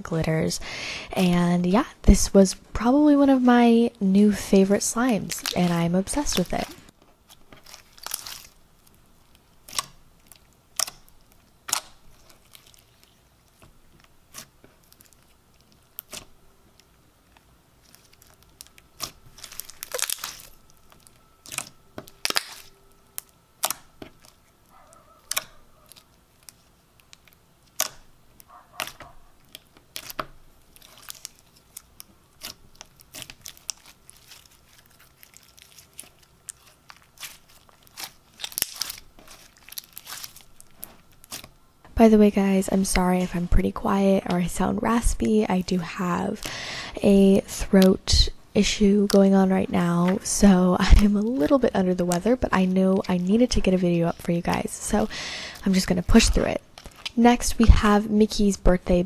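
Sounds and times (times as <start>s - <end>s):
bead slime crunching: 4.8s - 41.6s, 48.6s - 58.0s.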